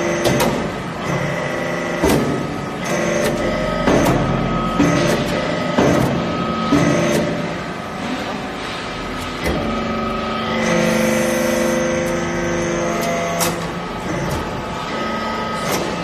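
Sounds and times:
hydraulic pump hum and whine: 0.0 - 16.0.

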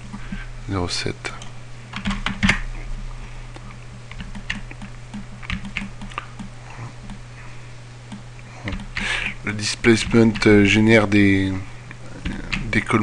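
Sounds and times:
low electrical hum: 0.0 - 13.0
keyboard typing: 2.0 - 2.6, 4.2 - 7.2.

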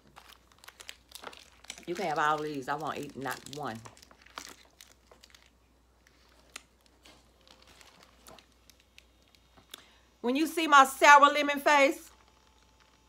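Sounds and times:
candy wrappers crinkling: 0.0 - 10.0.

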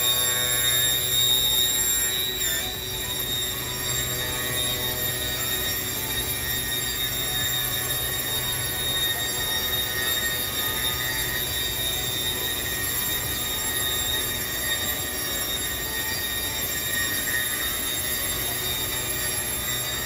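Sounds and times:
machine high-pitched whine: 0.0 - 20.0.

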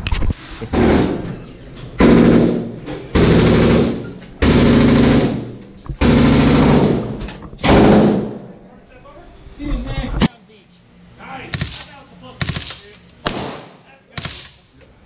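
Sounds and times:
automatic gunfire bursts indoors: 2.0 - 8.5, 12.4 - 14.6.

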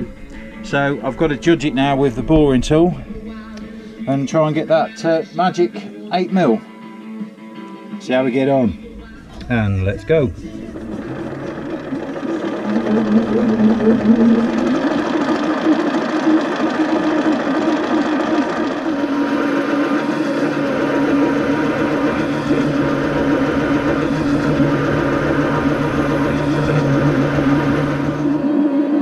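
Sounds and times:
lathe motor humming: 8.7 - 29.0
boring tool cutting metal: 9.2 - 28.4.

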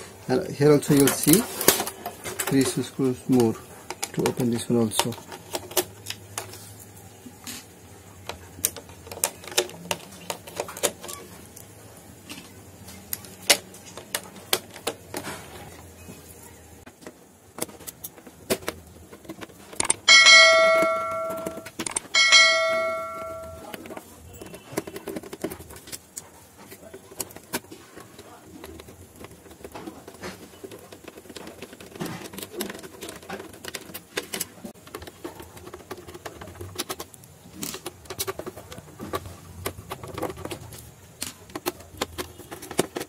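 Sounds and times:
bell ringing: 20.1 - 23.6.

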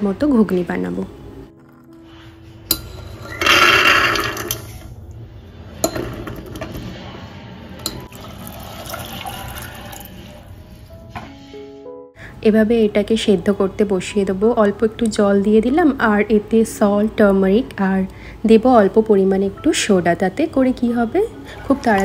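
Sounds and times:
water draining off peas: 8.1 - 10.3
water stream pouring into pot: 8.1 - 10.5.

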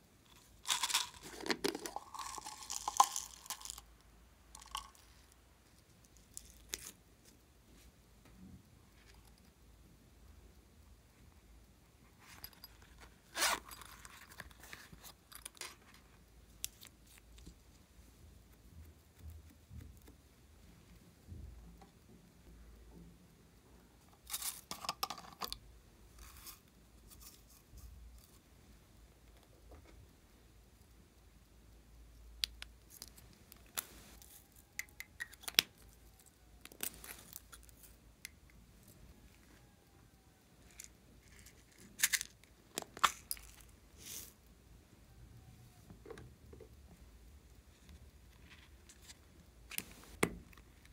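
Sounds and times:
pen clicks and rustles: 0.3 - 3.8.

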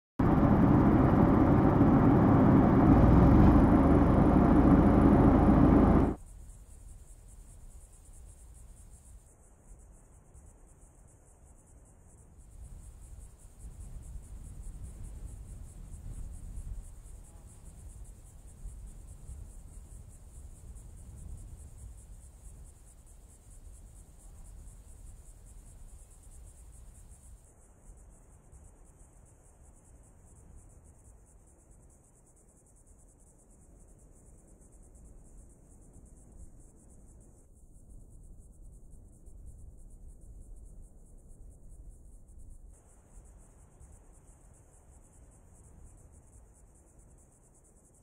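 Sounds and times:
insects chirring: 0.2 - 6.2
soft low rumble: 0.2 - 6.2.

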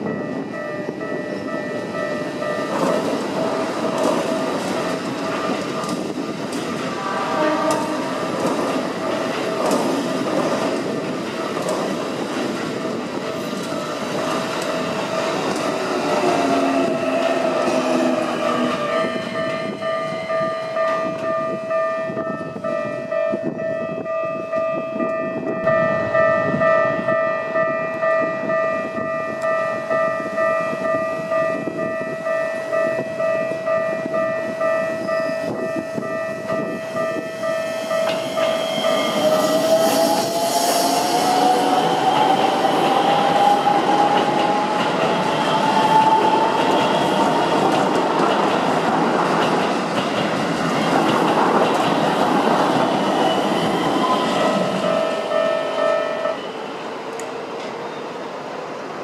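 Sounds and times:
train wheels clattering on rails: 0.0 - 21.4, 30.4 - 55.1
railway crossing bell ringing: 0.0 - 47.6, 53.0 - 56.5
electric train whine: 0.0 - 59.0.

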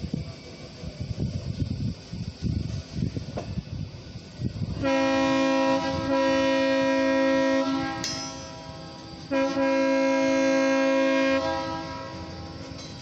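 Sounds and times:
low rumble of train: 0.0 - 13.0
locomotive air horn chord: 4.8 - 12.5.

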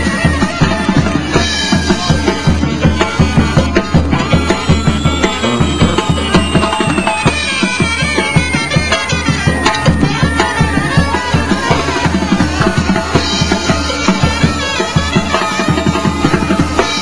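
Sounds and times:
music with drum beat: 0.0 - 17.0
thin falling tone: 4.2 - 12.2.

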